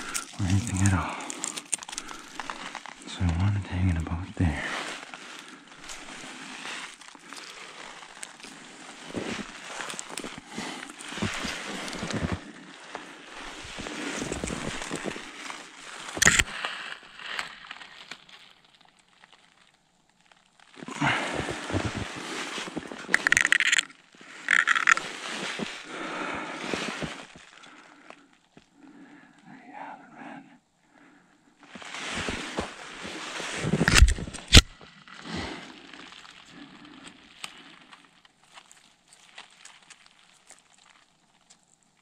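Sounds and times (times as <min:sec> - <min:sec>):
small twig clicks: 0:00.0 - 0:03.1, 0:13.4 - 0:20.8, 0:33.8 - 0:34.8
branches rustling against clothing: 0:00.0 - 0:29.6, 0:30.8 - 0:42.0
sharp cracks: 0:20.8 - 0:25.1.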